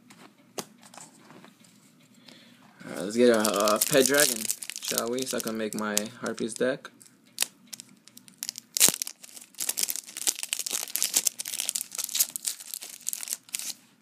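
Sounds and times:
foil wrapper crinkling and tearing: 3.0 - 6.7, 7.4 - 13.8.

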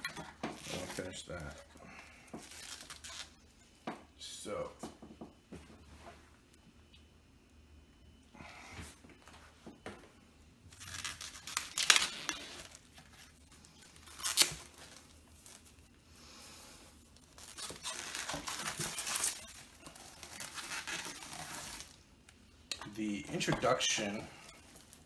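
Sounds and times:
plastic wrap crinkling: 0.0 - 3.5, 10.7 - 15.9, 17.0 - 25.0
plastic wrap snapping: 10.7 - 13.2, 14.0 - 15.7, 17.2 - 22.0.

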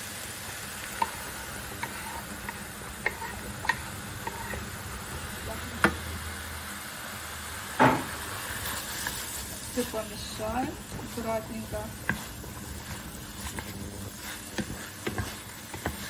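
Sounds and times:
food sizzling in a frying pan: 0.0 - 16.0
wooden spatula tapping a pan: 14.5 - 16.0.

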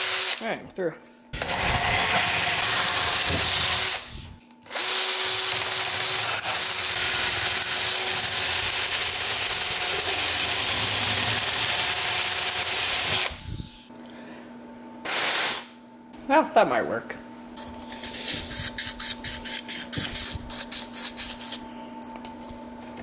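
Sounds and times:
cordless drill boring through metal: 0.0 - 0.4, 1.4 - 13.4.

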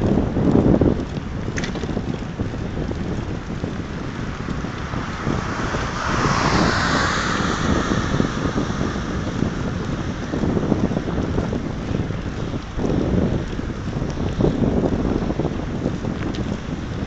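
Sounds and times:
wind buffeting microphone: 0.0 - 17.0
car passing with tyre hiss: 3.8 - 11.6.

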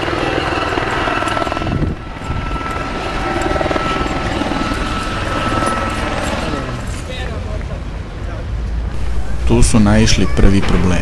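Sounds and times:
helicopter engine whine: 0.0 - 7.4
helicopter rotor chop: 0.0 - 7.4.

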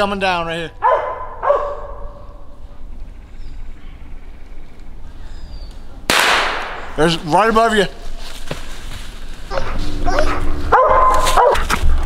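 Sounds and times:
hound baying: 0.8 - 2.6, 9.5 - 11.9
loud gunshot: 6.1 - 6.9.

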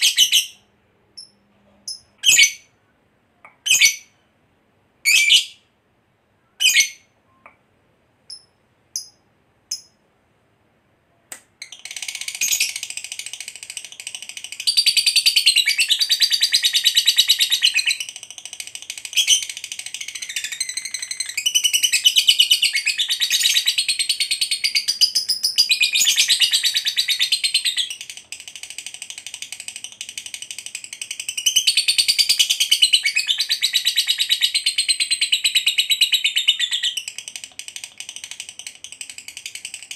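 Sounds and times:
lovebird chirping: 0.0 - 4.3, 5.0 - 5.7, 6.4 - 7.6, 8.2 - 10.1, 11.6 - 39.9
bird chattering trill: 11.6 - 25.2.

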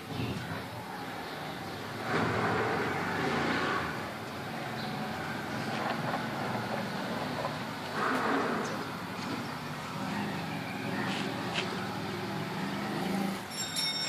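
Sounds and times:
vehicle passing: 0.0 - 13.6.

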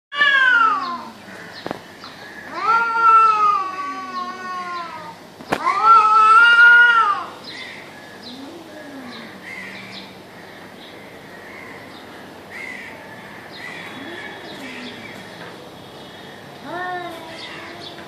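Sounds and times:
cats caterwauling: 0.1 - 1.2, 2.4 - 7.4, 8.2 - 9.9, 12.5 - 15.5, 16.6 - 18.0
birds calling faintly: 0.2 - 18.0
cat moaning low: 8.2 - 9.9, 13.8 - 15.2.

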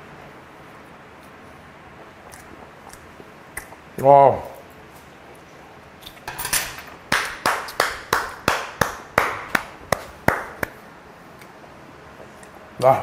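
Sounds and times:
hands clapping in rhythm: 7.1 - 10.8.

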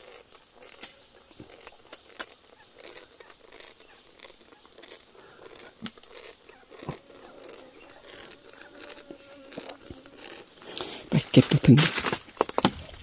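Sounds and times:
dry leaves crackling and rustling: 7.1 - 13.0.

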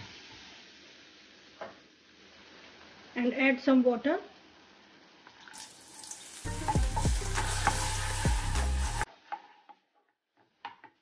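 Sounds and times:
sauce sizzling in a wok: 0.0 - 9.9
spatula stirring and scraping: 6.5 - 11.0.

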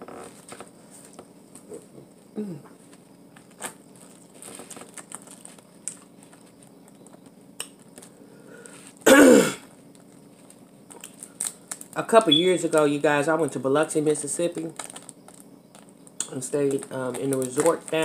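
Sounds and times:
crawfish shells cracking: 3.6 - 8.1, 9.8 - 12.0, 14.6 - 18.0.

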